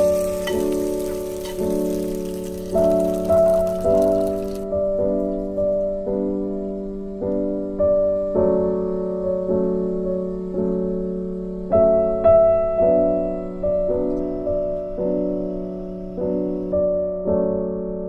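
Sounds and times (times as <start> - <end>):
slow gentle piano chords: 0.0 - 18.0.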